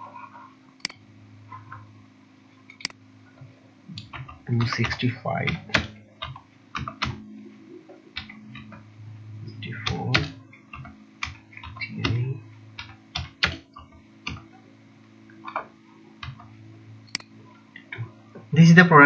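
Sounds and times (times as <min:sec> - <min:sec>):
low electrical hum: 0:00.0 - 0:19.0
computer keyboard typing: 0:03.9 - 0:14.6, 0:15.4 - 0:18.1.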